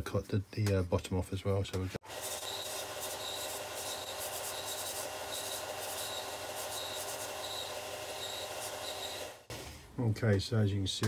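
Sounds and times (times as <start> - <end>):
belt sander humming: 2.0 - 9.6.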